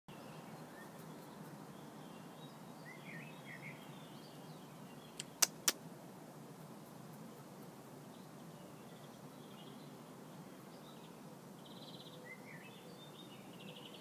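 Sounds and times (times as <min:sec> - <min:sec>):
faint outdoor hum: 0:00.1 - 0:14.0
sharp clicks: 0:05.2 - 0:05.8
faint bird chirps: 0:08.1 - 0:14.0.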